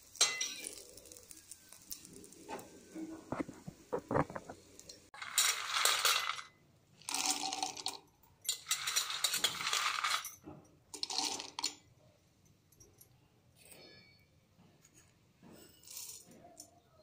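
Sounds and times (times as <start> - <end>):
peanuts clattering into metal jar: 5.2 - 10.4, 11.0 - 11.8, 15.8 - 16.2.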